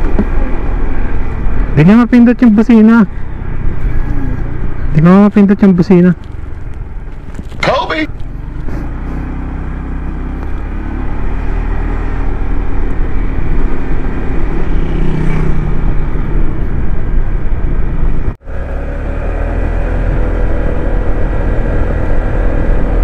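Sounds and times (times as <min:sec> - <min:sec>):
wind noise on microphone: 0:19.4 - 0:23.0.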